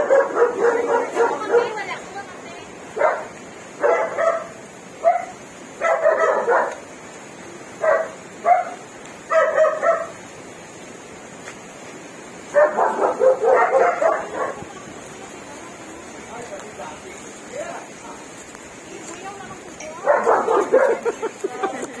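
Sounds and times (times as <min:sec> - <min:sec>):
dog barking and yipping: 0:00.0 - 0:01.9, 0:03.0 - 0:06.8, 0:07.8 - 0:10.2, 0:12.5 - 0:14.7, 0:20.0 - 0:21.3.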